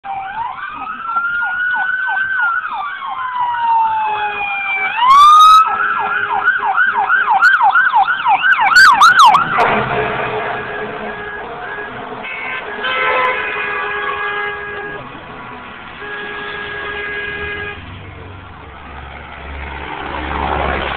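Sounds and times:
emergency sirens wailing and yelping: 0.0s - 20.9s
passing vehicle noise: 0.1s - 20.9s
vehicle horn blasts: 10.5s - 15.0s, 16.0s - 17.8s.

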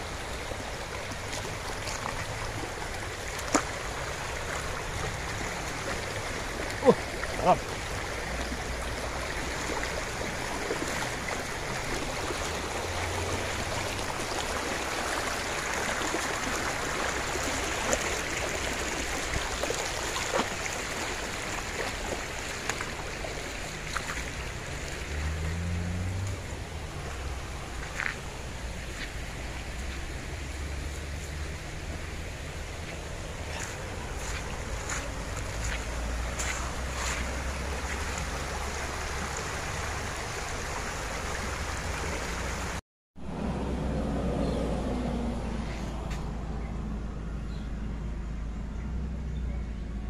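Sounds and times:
stream rushing over stones: 0.0s - 43.4s.

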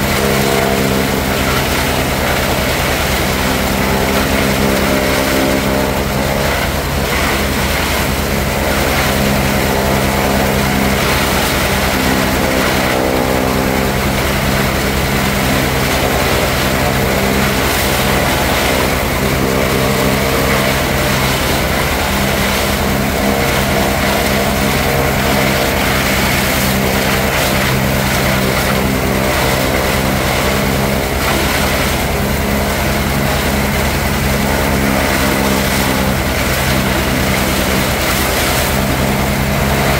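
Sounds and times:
tractor and harvester drone: 0.0s - 39.9s.

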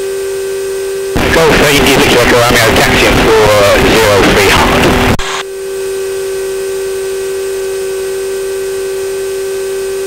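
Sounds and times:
aircraft engine drone: 1.1s - 9.1s
radio voice: 1.2s - 5.4s.

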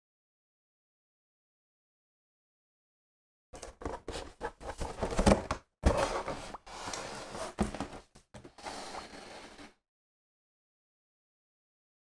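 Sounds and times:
cardboard rubbing and scraping: 3.6s - 9.8s.

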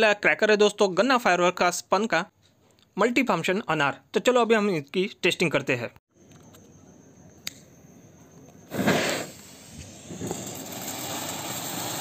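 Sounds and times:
click: 7.4s - 7.7s
firework fountain hissing: 8.7s - 12.0s
short loud hiss: 8.7s - 12.0s.

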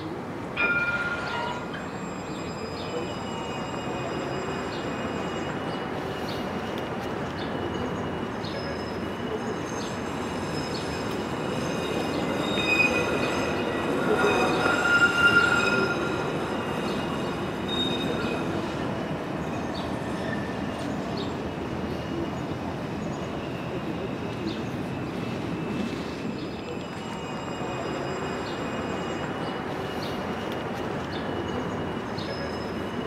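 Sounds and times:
tram running: 0.0s - 33.0s
wheel squeal on rails: 0.6s - 21.3s.

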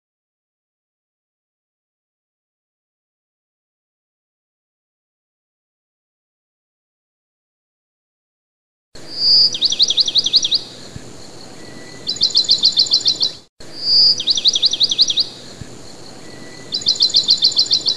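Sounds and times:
faint steady background noise: 9.0s - 17.9s
bird whistling and trilling: 9.1s - 10.8s, 11.5s - 17.9s.

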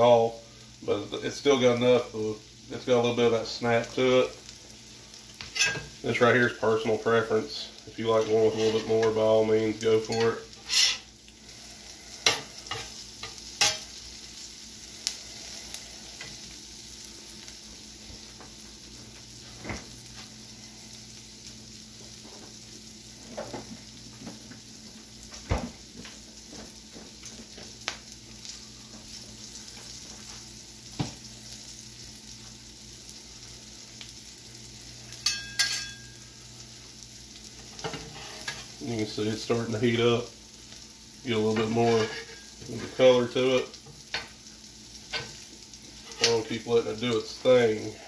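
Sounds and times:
food sizzling on a griddle: 0.0s - 48.0s
metal spatula scraping griddle: 8.1s - 9.2s, 10.0s - 11.1s, 37.8s - 38.7s, 41.6s - 43.0s.

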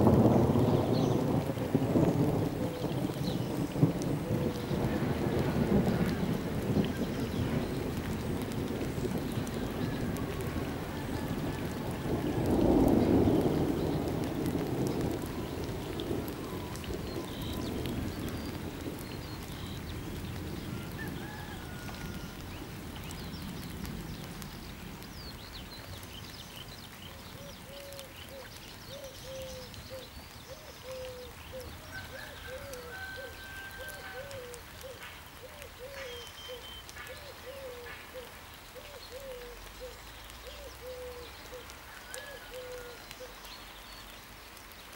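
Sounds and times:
thunder rumbling: 0.0s - 26.0s.

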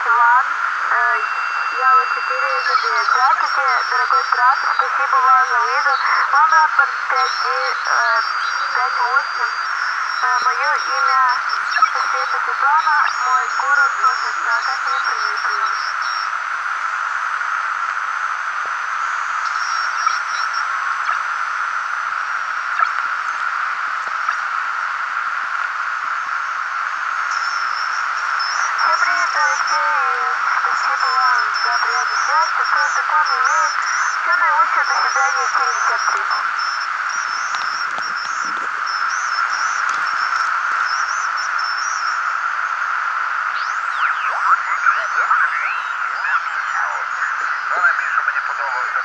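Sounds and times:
faint high-pitched beeps: 0.0s - 16.3s, 19.0s - 21.3s, 27.2s - 42.8s, 43.5s - 49.0s
radio static hiss: 0.0s - 49.0s.

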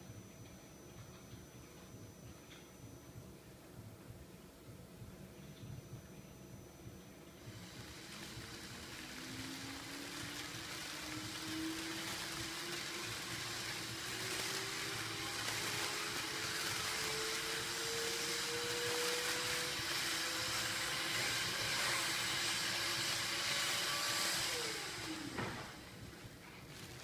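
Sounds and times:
bubble wrap machine hissing: 7.2s - 27.0s.

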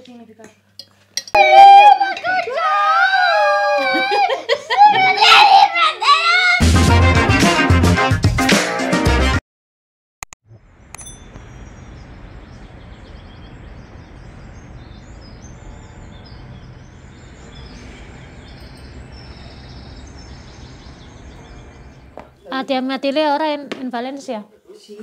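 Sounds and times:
birds chirping: 10.5s - 22.7s
distant traffic rumble: 10.5s - 22.7s.

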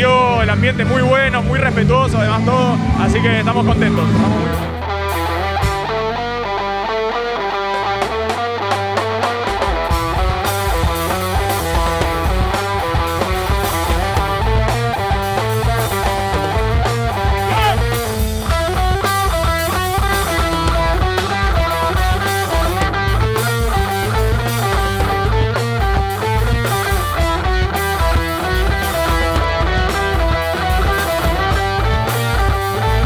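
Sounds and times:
rock band playing: 0.0s - 33.0s.

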